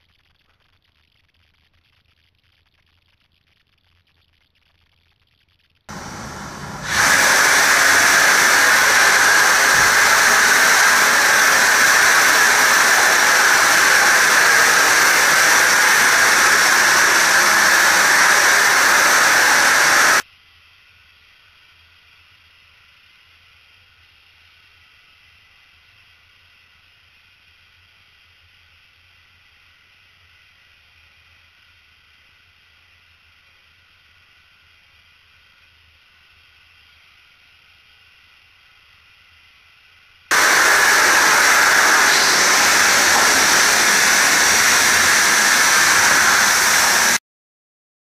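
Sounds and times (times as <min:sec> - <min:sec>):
spray gun hissing: 0:05.9 - 0:20.2, 0:40.3 - 0:47.2
faint steady hiss: 0:07.7 - 0:47.2.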